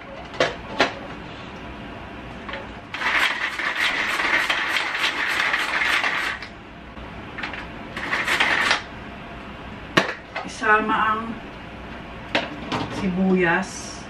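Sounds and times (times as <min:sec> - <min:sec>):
food chopper whirring rattle: 0:03.0 - 0:06.5, 0:08.0 - 0:08.8.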